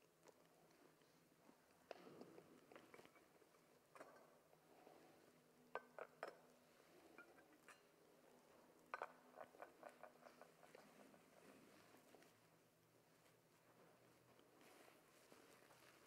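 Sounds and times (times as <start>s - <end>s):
faint clinks of metal vessels: 3.9s - 4.8s, 5.6s - 8.2s, 8.8s - 11.4s.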